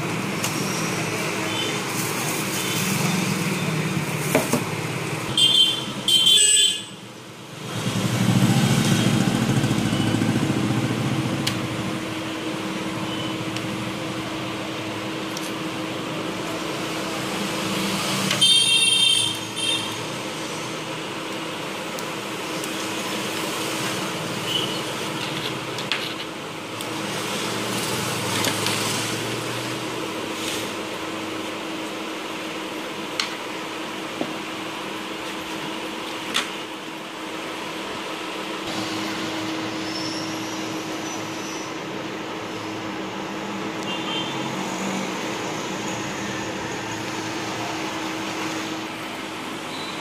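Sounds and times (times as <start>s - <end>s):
vehicle horn honking: 5.3s - 7.0s, 18.4s - 20.0s, 43.8s - 44.5s
road traffic hum: 6.8s - 50.0s.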